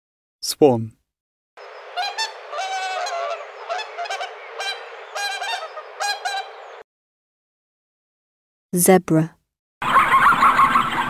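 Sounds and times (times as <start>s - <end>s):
swan honking: 1.6s - 6.8s, 9.8s - 11.0s.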